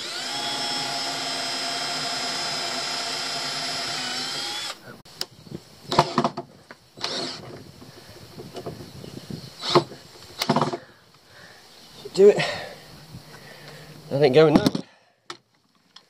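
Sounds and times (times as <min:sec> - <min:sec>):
cordless drill boring through wood: 0:00.0 - 0:05.0, 0:05.9 - 0:07.7, 0:09.6 - 0:10.8.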